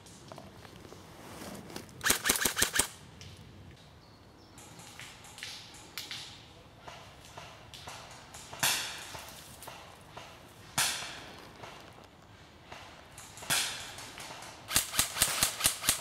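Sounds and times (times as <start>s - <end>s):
airsoft rifle shots: 2.0s - 3.0s, 13.2s - 16.0s.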